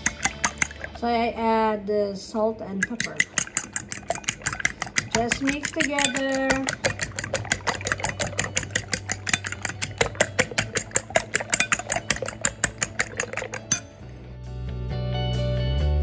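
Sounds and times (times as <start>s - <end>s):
fork whisking eggs in bowl: 0.0s - 1.0s, 2.8s - 14.0s
background music: 0.0s - 16.0s.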